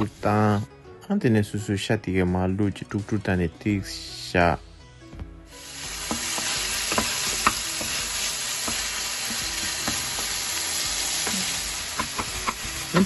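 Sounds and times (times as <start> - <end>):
meat sizzling in a pan: 5.5 - 13.0.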